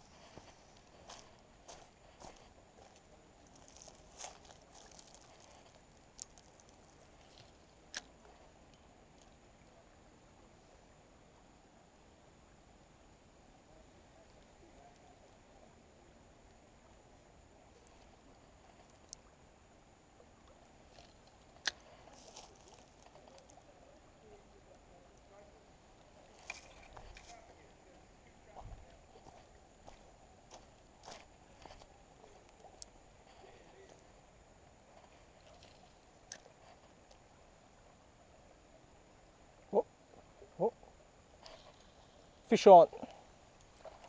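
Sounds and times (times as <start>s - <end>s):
faint scratchy ticks: 0.0s - 9.4s, 17.8s - 19.3s, 41.4s - 42.2s
faint steady hiss: 0.0s - 44.0s.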